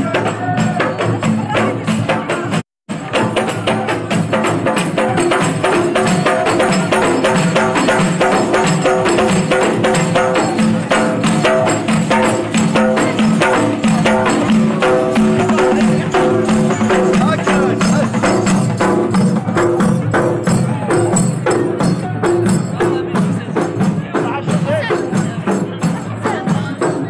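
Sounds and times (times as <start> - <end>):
frame drums beaten in fast rhythm: 0.0 - 27.0
group of men singing: 3.1 - 19.8.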